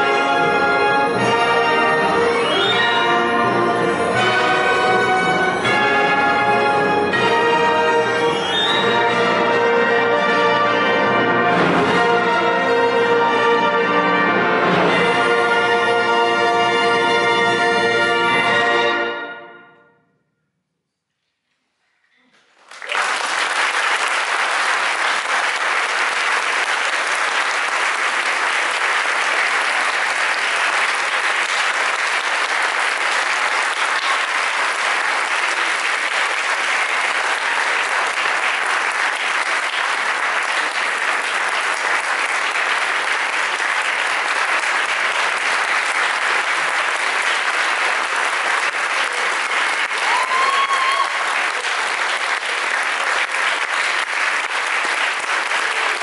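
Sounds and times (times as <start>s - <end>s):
audience applauding: 0.0s - 9.2s, 22.3s - 56.0s.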